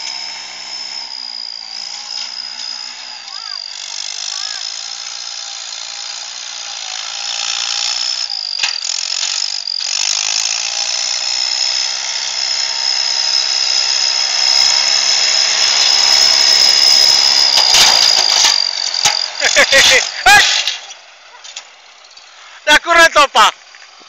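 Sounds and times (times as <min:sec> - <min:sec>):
high-pitched whine: 0:12.6 - 0:22.8
tractor diesel engine running: 0:13.0 - 0:24.0.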